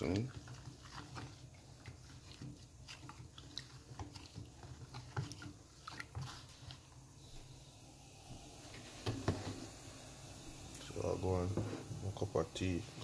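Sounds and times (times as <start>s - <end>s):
spoon stirring wet slurry: 0.0s - 13.0s.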